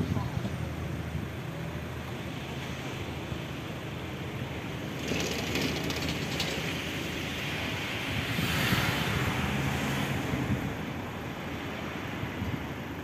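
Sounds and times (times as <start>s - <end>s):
wind on microphone: 5.2s - 13.0s.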